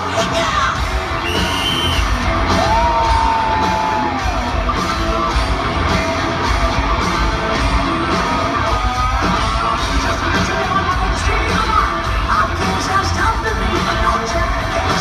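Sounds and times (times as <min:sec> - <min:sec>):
vocals: 0:00.0 - 0:04.2, 0:07.8 - 0:15.0
crowd noise: 0:00.0 - 0:15.0
distorted electric guitars: 0:00.0 - 0:15.0
steady drum beat: 0:00.1 - 0:15.0.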